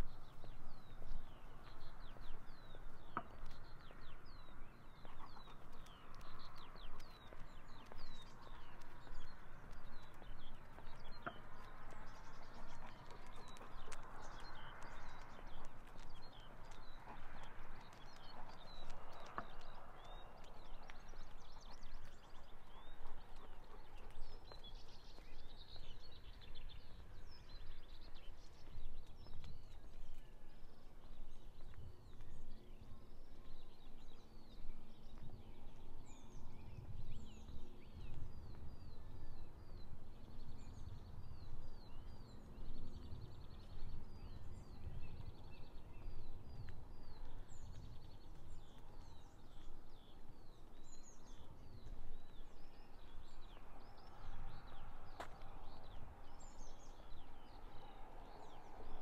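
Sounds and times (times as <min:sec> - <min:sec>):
small songbirds chirping: 0:00.0 - 0:59.0
steady low rumble: 0:00.0 - 0:59.0.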